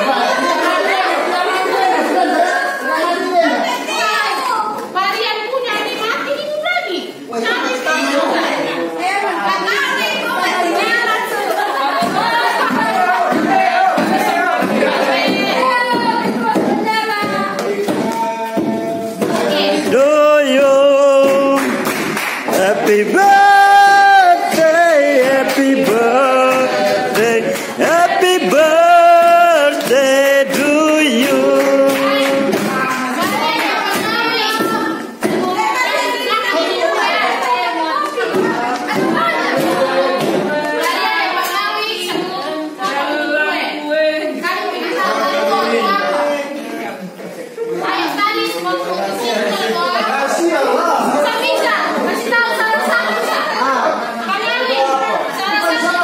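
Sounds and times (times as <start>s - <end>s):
group singing without instruments: 9.7s - 47.1s
sharp claps or knocks: 21.2s - 22.8s.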